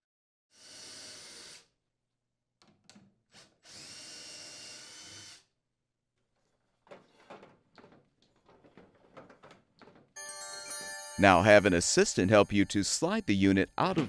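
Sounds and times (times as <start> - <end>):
cordless drill spinning: 3.4 - 5.5.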